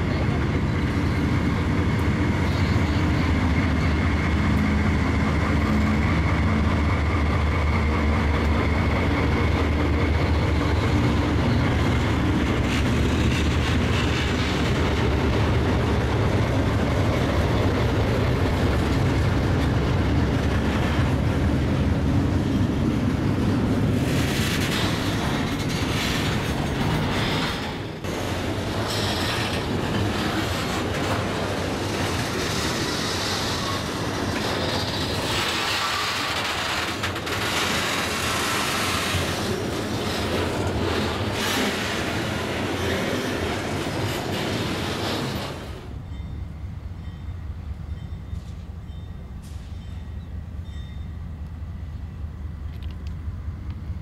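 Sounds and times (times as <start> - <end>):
locomotive engines humming: 0.0 - 54.0
train wheels clacking on rail joints: 23.8 - 45.8.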